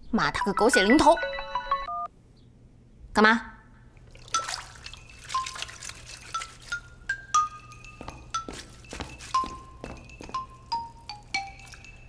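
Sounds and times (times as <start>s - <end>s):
plucked bell-like notes: 4.4s - 12.0s.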